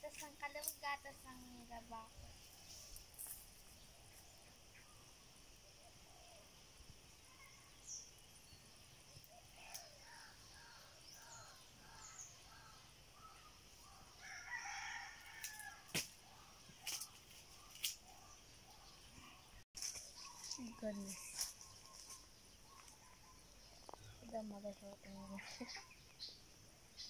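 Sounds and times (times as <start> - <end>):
rooster crowing: 14.2 - 15.9.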